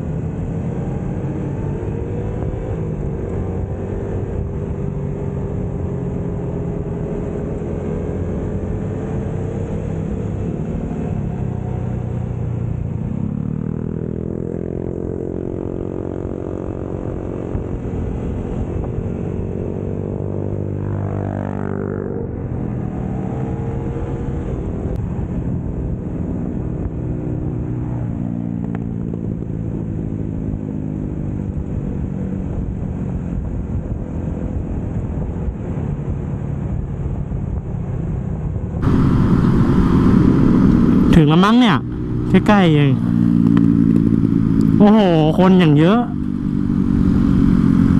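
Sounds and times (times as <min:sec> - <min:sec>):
motorcycle engine revving: 0:00.0 - 0:34.8, 0:38.3 - 0:47.9.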